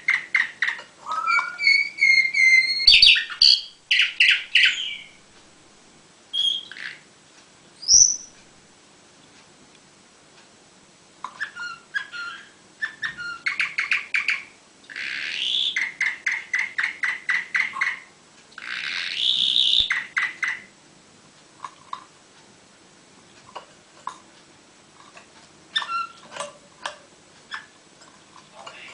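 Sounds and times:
canary chirping and trilling: 0.0 - 5.2, 6.3 - 7.1, 7.8 - 8.4, 11.3 - 20.7, 25.7 - 26.4.

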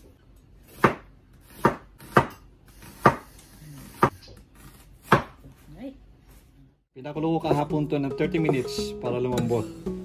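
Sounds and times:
knife chopping on cutting board: 0.7 - 5.4.

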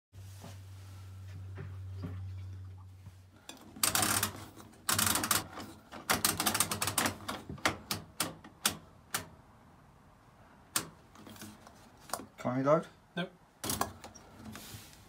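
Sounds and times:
low hum: 0.2 - 3.4.

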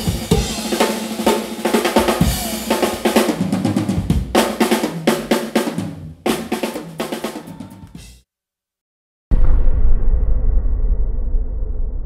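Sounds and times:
cymbals ringing: 0.0 - 3.2
drum kit solo: 0.0 - 8.2.

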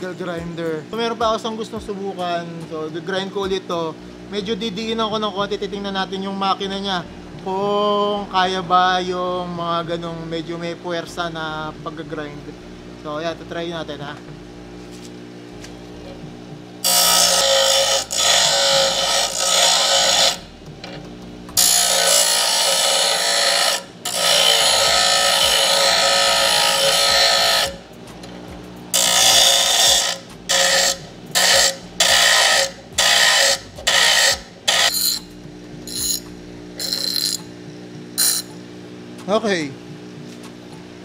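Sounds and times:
grinder motor humming: 13.8 - 38.9
grinder wheel grinding steel: 16.8 - 21.0, 21.6 - 37.5, 38.2 - 38.6.

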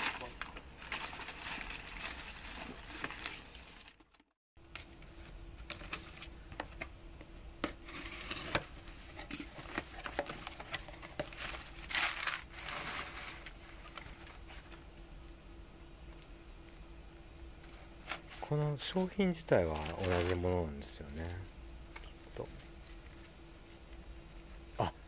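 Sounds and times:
packing paper rustling: 0.0 - 4.3, 7.9 - 14.8, 17.7 - 21.4.

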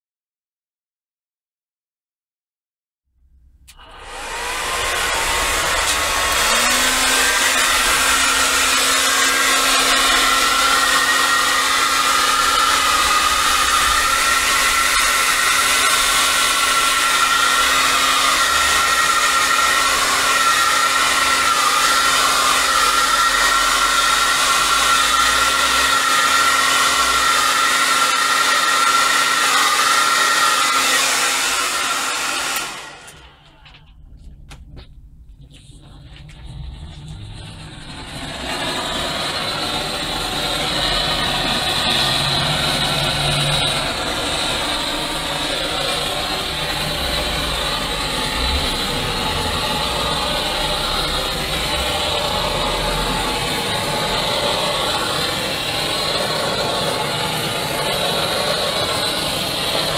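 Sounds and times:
heat gun motor hum: 3.7 - 33.3
heat gun blowing air: 3.7 - 33.4, 37.6 - 59.9.

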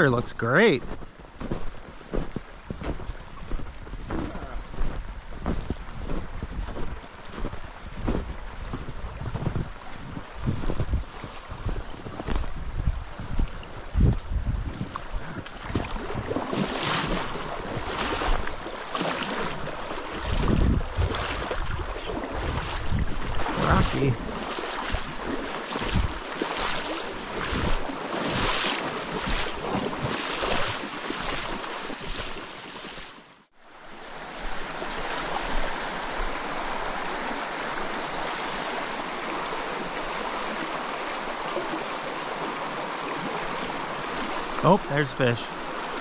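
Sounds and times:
stream water running over rocks: 0.0 - 46.0
wind buffeting microphone: 0.8 - 18.8, 19.4 - 28.5.

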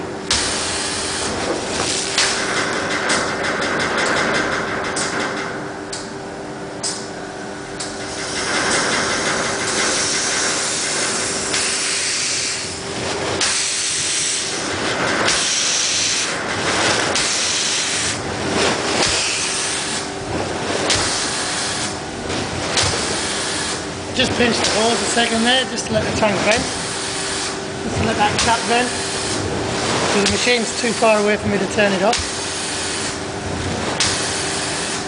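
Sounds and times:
compressed air frothing through liquid: 8.0 - 35.0.

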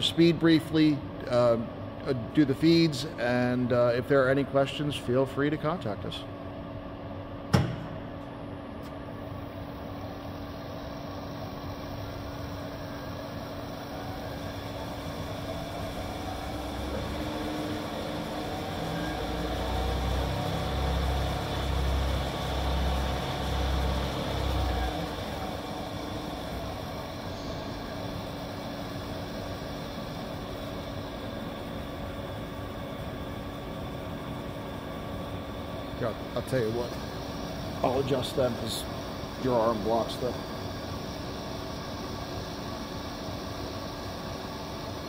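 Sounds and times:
lathe spindle running: 0.0 - 6.8, 8.4 - 45.0
steady hum: 0.0 - 45.0.

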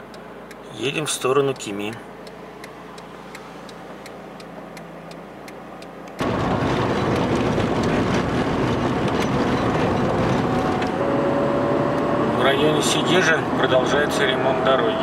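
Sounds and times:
turn-signal relay ticking: 0.0 - 6.2
engine and road noise at speed: 0.0 - 15.0.

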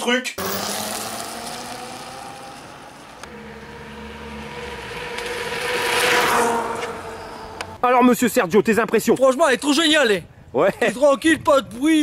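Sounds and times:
electric scooter motor whining: 0.4 - 7.8
tyre noise on asphalt: 0.4 - 7.8.

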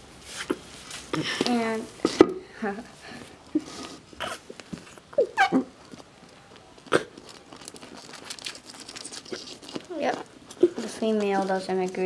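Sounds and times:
squeaky vocal hums: 4.2 - 5.9, 9.0 - 10.9.

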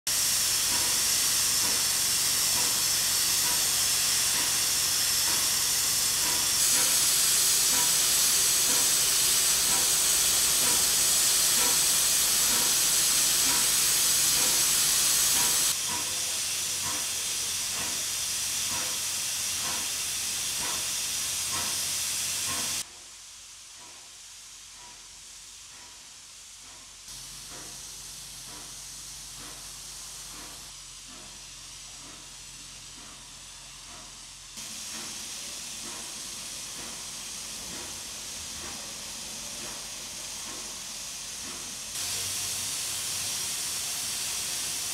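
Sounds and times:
steam hissing from locomotive: 0.1 - 44.9.

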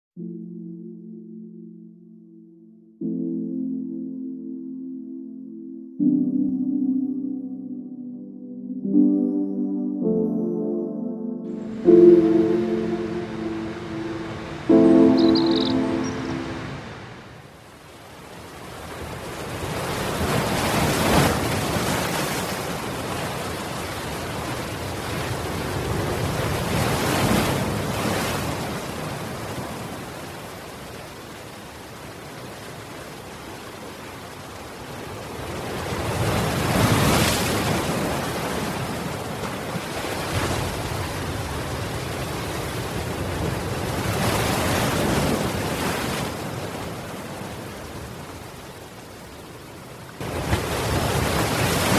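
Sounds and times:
waves crashing against a seawall: 18.3 - 33.8, 34.8 - 48.3, 50.2 - 51.9.

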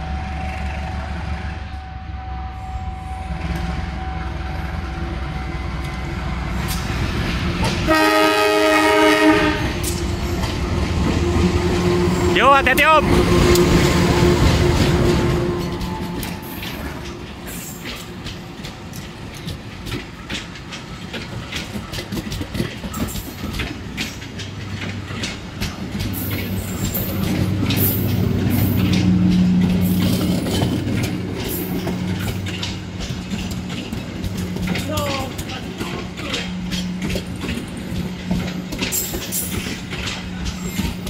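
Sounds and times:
train wheels clicking over rail joints: 5.2 - 41.0.

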